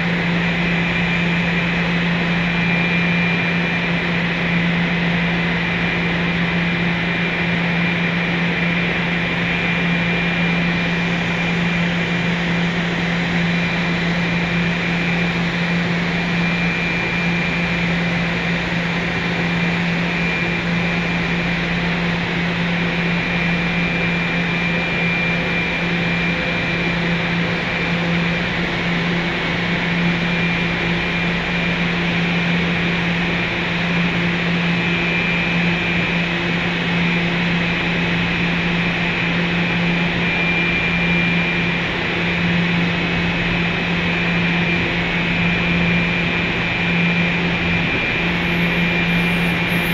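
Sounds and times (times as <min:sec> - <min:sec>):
tunnel mechanical hum and rushing: 0:36.0 - 0:49.9
thin high whine: 0:45.5 - 0:49.9.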